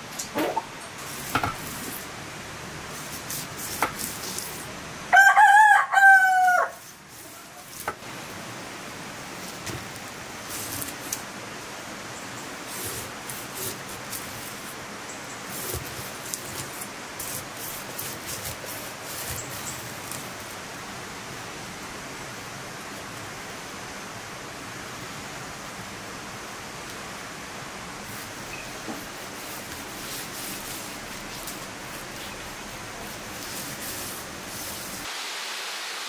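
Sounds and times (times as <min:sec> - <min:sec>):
rain hissing: 0:00.0 - 0:05.1, 0:06.8 - 0:36.0
rooster crowing: 0:05.1 - 0:06.8.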